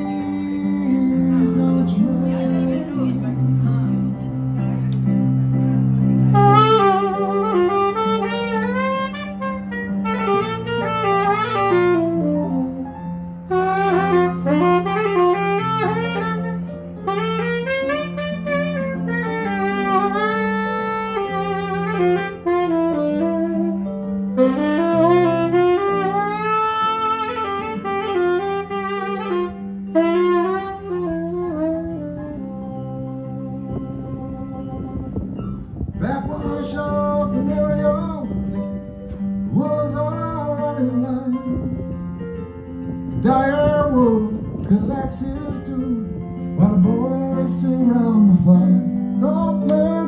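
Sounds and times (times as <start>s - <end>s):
sustained low accompaniment: 0.0s - 10.8s, 30.4s - 50.0s
tenor saxophone solo: 0.0s - 50.0s.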